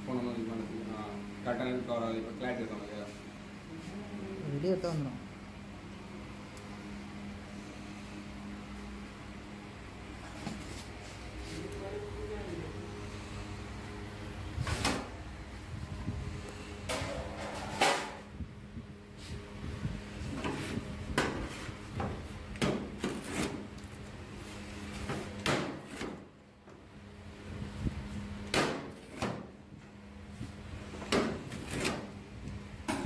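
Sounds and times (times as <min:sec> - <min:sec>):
pizza cutter slicing pizza: 0:22.6 - 0:23.7, 0:31.2 - 0:32.1.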